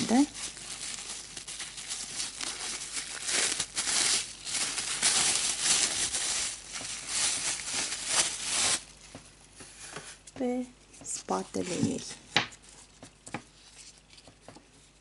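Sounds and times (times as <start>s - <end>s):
plastic wrapping crinkling: 0.0s - 9.4s.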